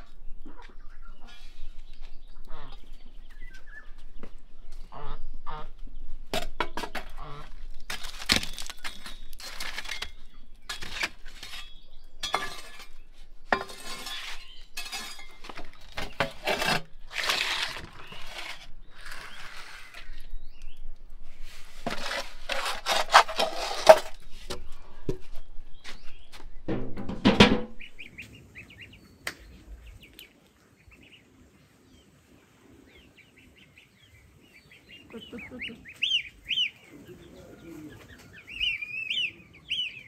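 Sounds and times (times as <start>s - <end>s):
metal tray scraping on brick: 6.6s - 20.3s, 21.4s - 24.6s
charcoal clattering: 7.8s - 20.0s, 21.8s - 24.2s.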